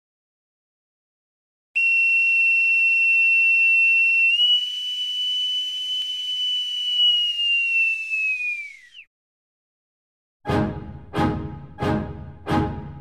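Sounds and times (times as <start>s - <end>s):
high whistle-like tone: 1.8s - 9.1s.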